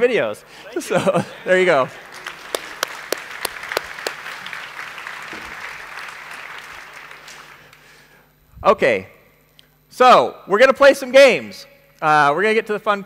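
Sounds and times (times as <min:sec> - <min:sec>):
audience applauding: 0:00.8 - 0:08.0
sharp individual claps: 0:02.1 - 0:07.9.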